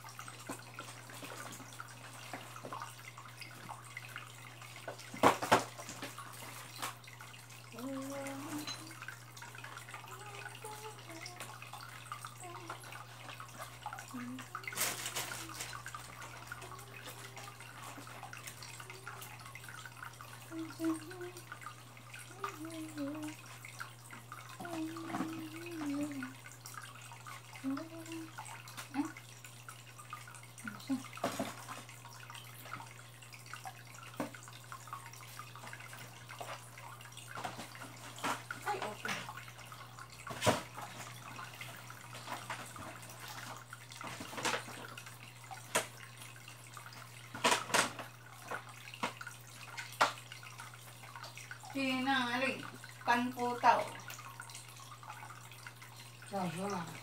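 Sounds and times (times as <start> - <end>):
water dripping and splashing: 0.0 - 57.0.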